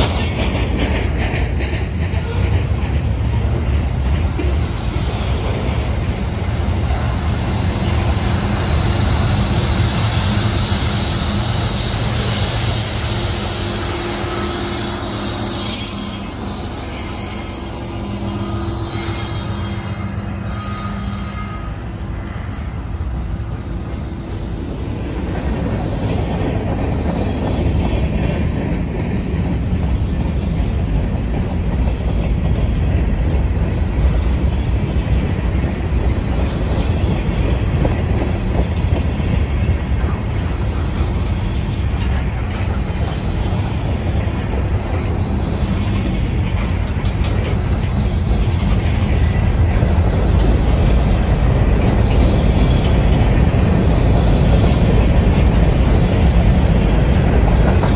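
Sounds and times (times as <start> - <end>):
train wheels rumbling and clattering: 0.0 - 57.9
high wheel squeals: 7.3 - 23.0, 42.8 - 44.2, 46.9 - 49.4, 52.0 - 53.6.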